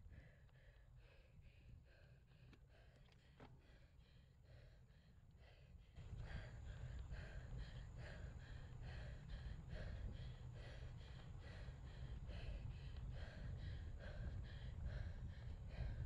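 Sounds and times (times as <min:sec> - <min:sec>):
cyclist breathing hard: 0:00.0 - 0:16.0
wind rumble on microphone: 0:06.0 - 0:16.0.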